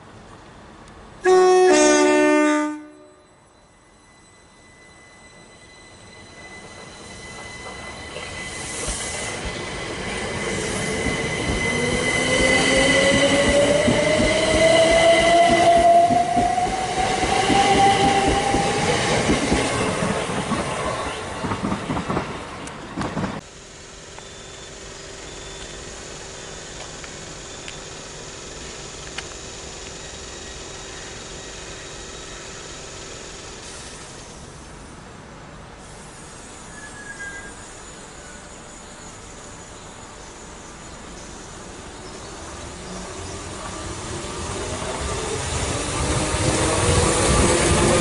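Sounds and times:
distant rail hum: 0:00.0 - 0:48.0
electric train motors whining: 0:03.2 - 0:20.4, 0:23.4 - 0:34.6.

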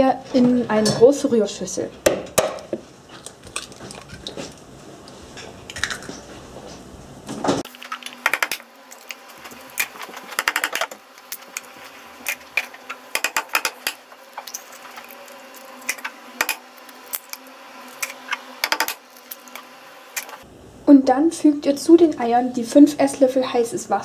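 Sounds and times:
eggshells cracking: 0:03.2 - 0:04.4, 0:08.0 - 0:20.3.

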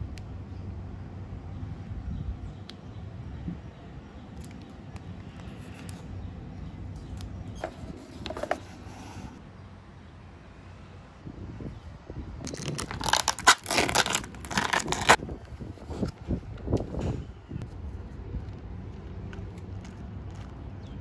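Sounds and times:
steady low rumble: 0:00.0 - 0:07.9, 0:09.3 - 0:21.0
plastic wrapping crinkling: 0:12.5 - 0:15.2.

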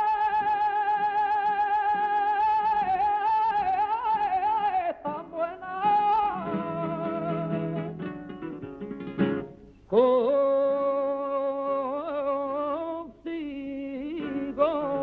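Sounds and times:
person singing: 0:00.0 - 0:08.0, 0:09.9 - 0:15.0
acoustic guitar strumming: 0:02.8 - 0:09.8.

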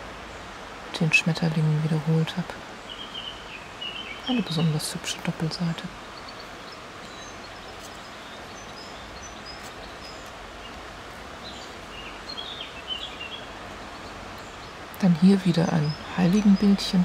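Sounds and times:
steady ambient hiss: 0:00.0 - 0:17.0
high bird chirps: 0:05.5 - 0:10.8.

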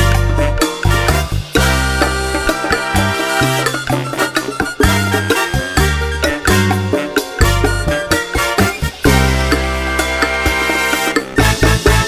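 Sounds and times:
instrumental music with steady beat: 0:00.0 - 0:12.0.

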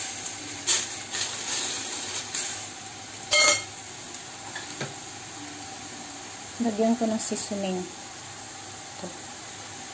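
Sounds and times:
faint sizzle: 0:00.0 - 0:09.9
metal clink on pan: 0:03.3 - 0:03.7.

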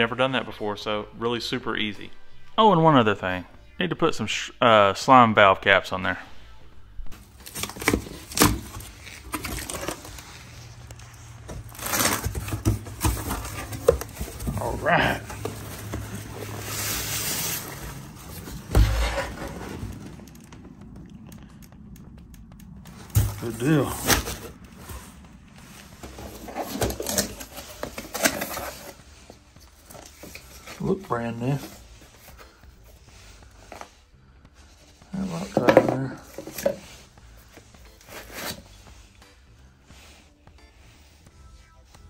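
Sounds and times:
cardboard flaps scraping and rustling: 0:07.1 - 0:20.9, 0:22.9 - 0:34.0, 0:35.1 - 0:38.9.

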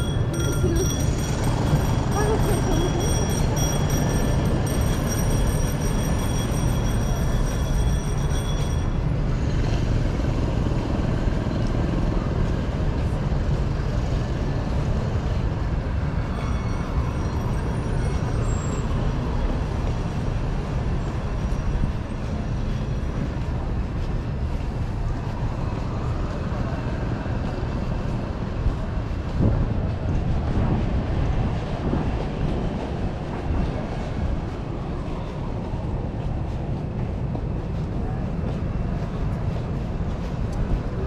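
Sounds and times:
high steady tones: 0:00.0 - 0:09.1
metro train rumbling: 0:00.0 - 0:41.0.

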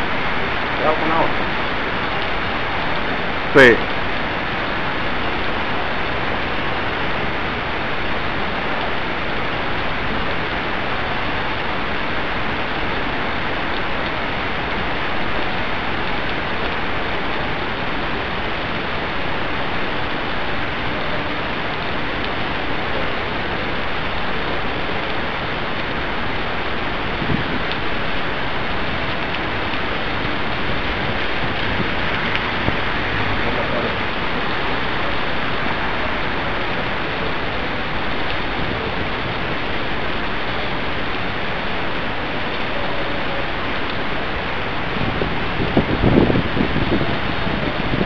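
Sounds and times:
rain on cobbled street: 0:00.0 - 0:48.0.

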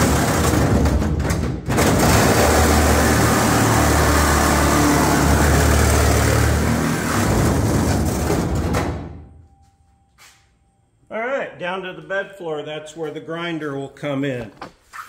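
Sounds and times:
reciprocating saw cutting sheet steel: 0:01.9 - 0:08.1.

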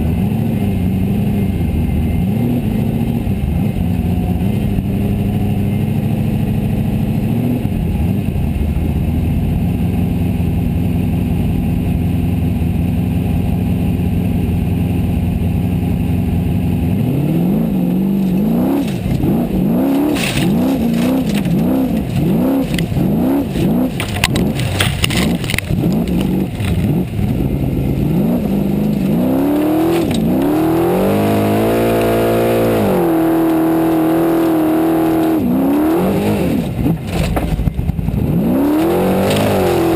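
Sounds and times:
car engine revving: 0:00.0 - 0:39.9
knocks and clatter: 0:18.2 - 0:27.5, 0:36.8 - 0:38.2.

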